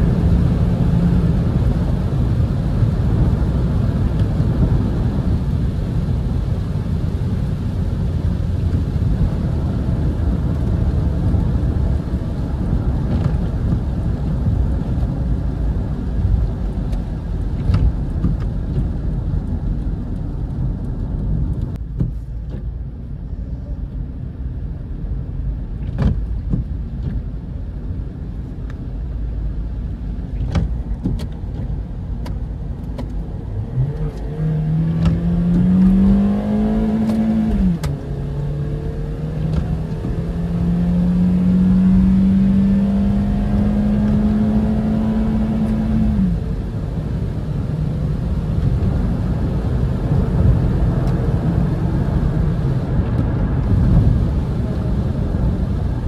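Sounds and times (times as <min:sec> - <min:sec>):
road and tyre rumble: 0:00.0 - 0:56.0
car engine accelerating: 0:24.5 - 0:56.0.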